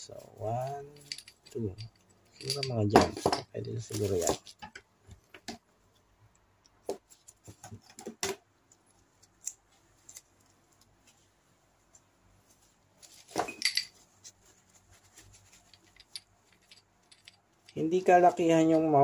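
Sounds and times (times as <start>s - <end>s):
parts clattering: 0.6s - 5.6s, 13.0s - 14.4s, 15.0s - 19.0s.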